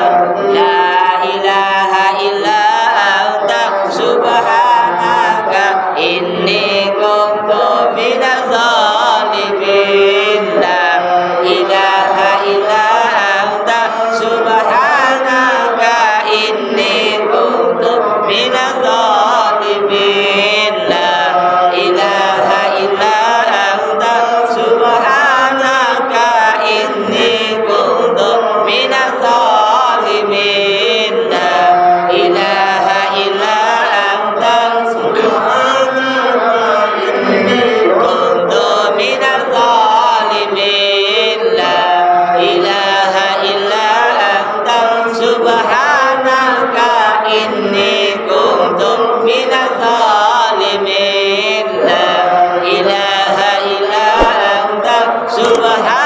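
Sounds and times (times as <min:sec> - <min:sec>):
melodic chanting voices: 0:00.0 - 0:56.0.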